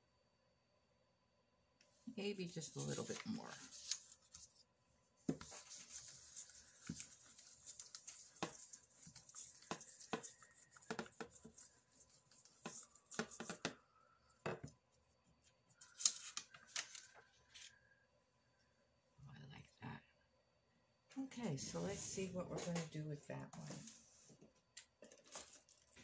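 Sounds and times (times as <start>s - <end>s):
paper rustling under roller: 2.6s - 4.6s, 5.3s - 13.8s.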